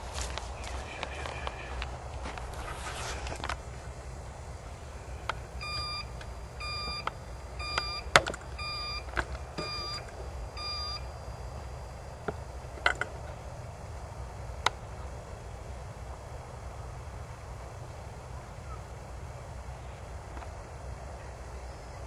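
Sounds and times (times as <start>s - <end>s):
electronic beeps: 5.6s - 11.1s.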